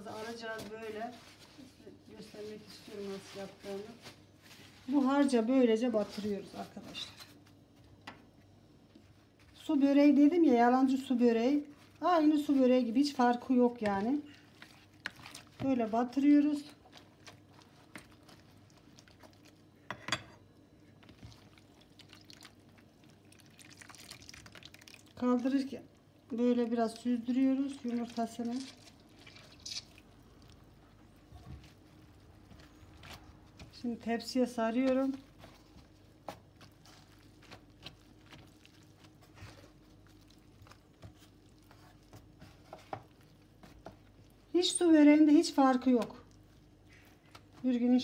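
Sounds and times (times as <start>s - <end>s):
wet squelching of pastry: 0.0s - 7.8s, 8.8s - 19.9s, 20.6s - 48.0s
egg dripping into bowl: 21.3s - 25.2s.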